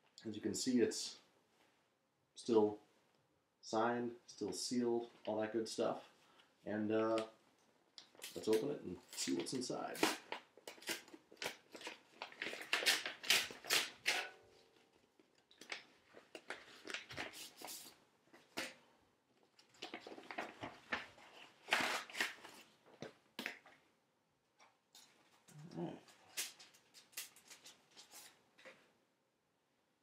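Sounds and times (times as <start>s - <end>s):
paper tearing and rustling: 8.2s - 14.3s, 15.6s - 18.0s, 19.6s - 22.7s, 26.2s - 28.4s.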